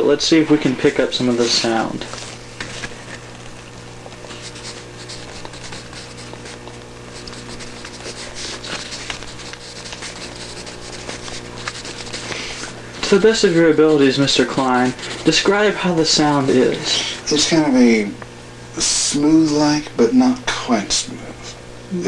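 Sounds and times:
low electrical hum: 0.0s - 22.0s
pencil scratching on paper: 4.2s - 17.6s.

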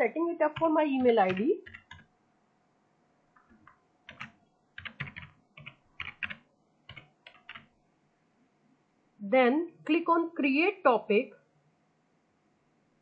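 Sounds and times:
typing on computer keyboard: 0.5s - 2.1s, 3.4s - 7.7s.

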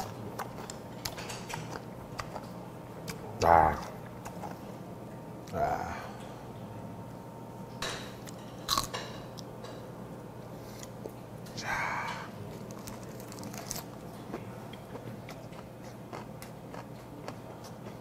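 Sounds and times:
lettuce crunching: 12.5s - 17.8s
lettuce leaves crackling: 12.6s - 14.0s.

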